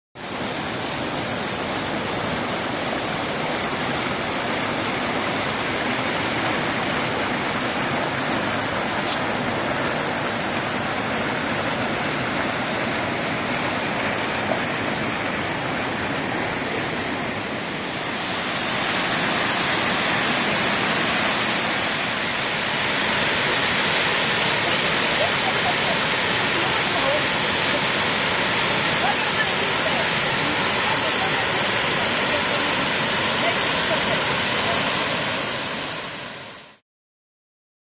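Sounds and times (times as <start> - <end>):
stream and waterfall rushing: 0.2 - 36.8.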